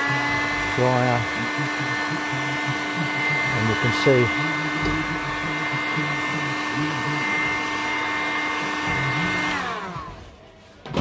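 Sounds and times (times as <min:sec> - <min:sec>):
heat gun fan whining: 0:00.0 - 0:10.2.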